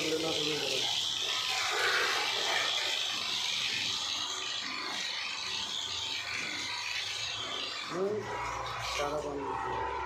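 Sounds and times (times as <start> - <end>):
pressure washer water spray: 0.0 - 9.2
washer motor and pump running: 0.0 - 10.0.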